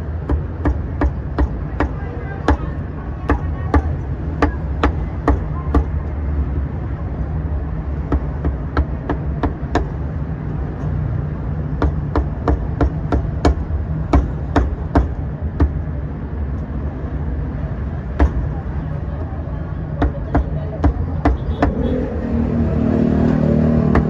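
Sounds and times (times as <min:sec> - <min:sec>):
cleaver chopping on wooden block: 0:00.2 - 0:02.7, 0:08.1 - 0:10.0, 0:11.8 - 0:15.8, 0:18.2 - 0:18.5, 0:20.0 - 0:21.8, 0:23.8 - 0:24.0.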